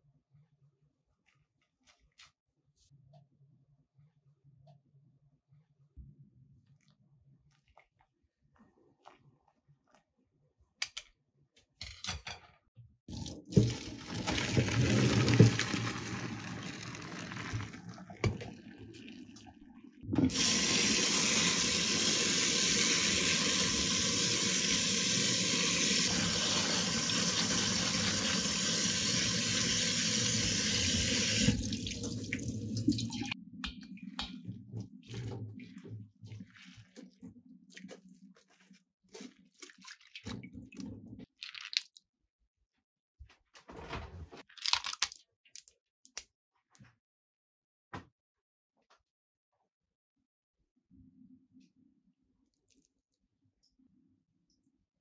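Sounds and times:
water splashing in a steel sink: 0:13.1 - 0:38.2, 0:39.1 - 0:42.0.

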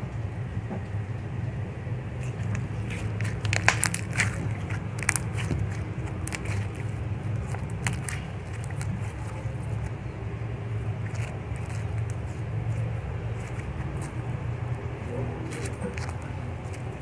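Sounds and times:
steady low hum: 0:00.0 - 0:17.0
slime clicking and popping: 0:02.2 - 0:10.0.

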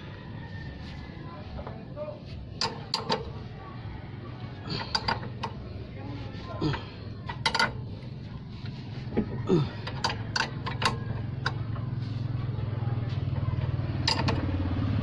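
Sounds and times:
engine idling: 0:00.0 - 0:15.0
metal tools clinking: 0:04.7 - 0:05.6, 0:06.6 - 0:08.0, 0:09.8 - 0:11.7, 0:14.0 - 0:14.4.

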